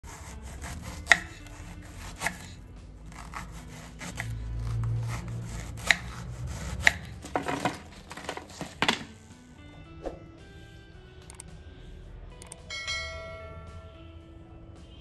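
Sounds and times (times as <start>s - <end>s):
knife slicing banana: 0.1s - 8.9s
blade knocking on wooden board: 6.8s - 9.1s.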